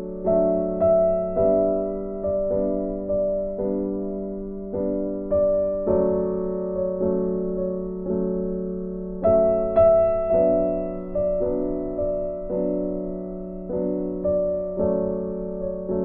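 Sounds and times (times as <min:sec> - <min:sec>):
slow gentle piano: 0:00.0 - 0:16.0.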